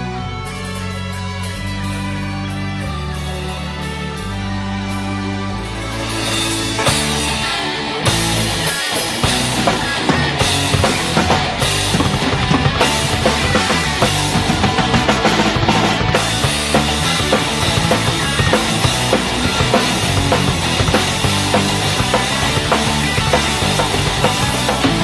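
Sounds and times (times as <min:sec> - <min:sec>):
fast drum beat: 0:06.0 - 0:25.0.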